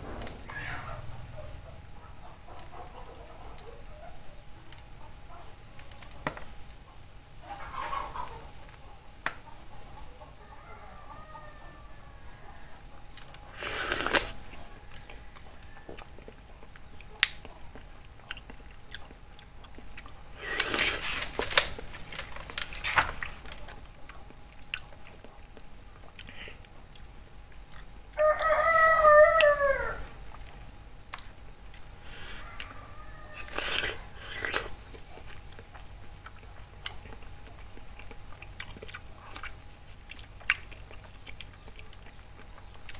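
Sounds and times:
rooster crowing: 10.2s - 12.9s, 13.6s - 16.3s, 28.1s - 30.2s, 32.1s - 34.5s
wet biting and slurping: 13.5s - 15.2s, 17.1s - 21.6s, 33.4s - 42.1s.

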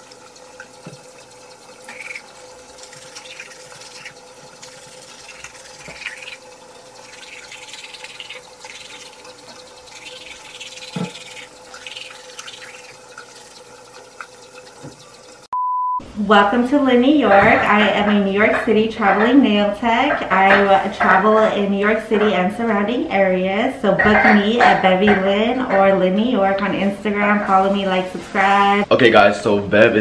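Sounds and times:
toothbrush scrubbing teeth: 0.0s - 15.5s
steady hum: 0.0s - 29.4s.

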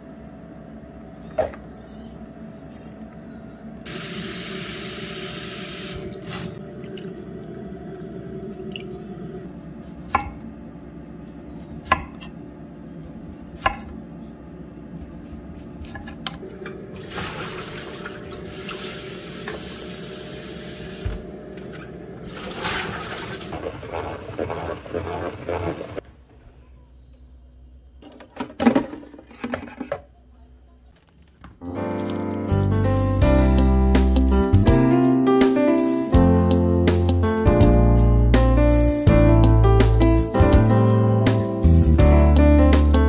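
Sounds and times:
tap water running: 3.9s - 9.6s, 16.4s - 26.0s.

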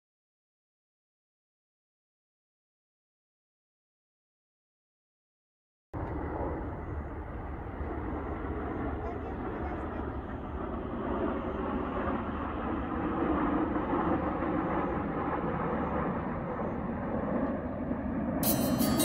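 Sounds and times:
jet engines flying overhead: 6.0s - 19.0s
harpsichord music: 18.4s - 19.0s.

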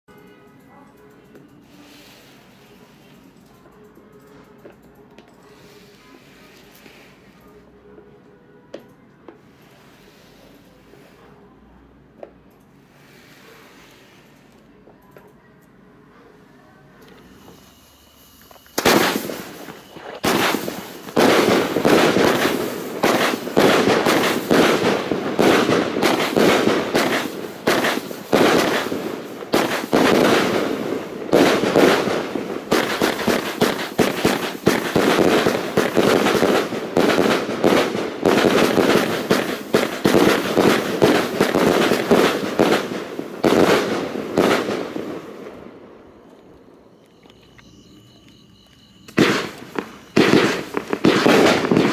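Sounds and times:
fireworks firing and bursting: 17.2s - 46.0s, 48.9s - 51.9s.

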